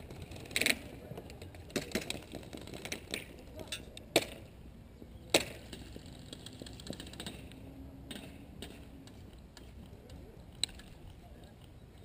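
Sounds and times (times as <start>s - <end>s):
faint scattered clicks: 5.3s - 12.0s.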